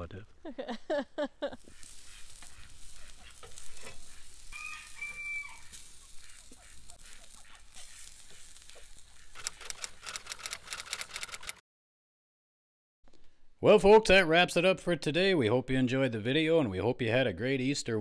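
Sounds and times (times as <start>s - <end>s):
steaks sizzling on a grill: 1.6s - 9.4s
sharp clicks: 9.3s - 11.6s.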